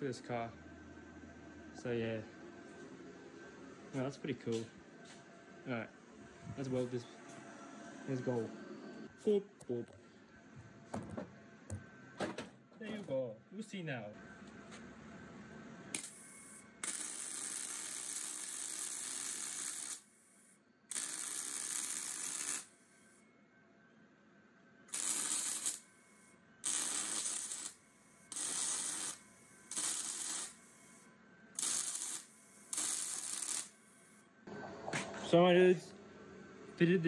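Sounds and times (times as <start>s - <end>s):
welding arc crackling: 16.0s - 20.1s, 20.9s - 22.8s, 24.9s - 25.9s, 26.6s - 30.7s, 31.6s - 33.8s.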